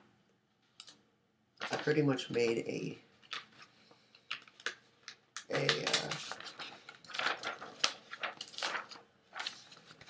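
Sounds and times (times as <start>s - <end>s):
paper rustling and flapping: 1.6s - 2.1s, 3.2s - 10.0s
small clicks and crinkles: 3.2s - 10.0s.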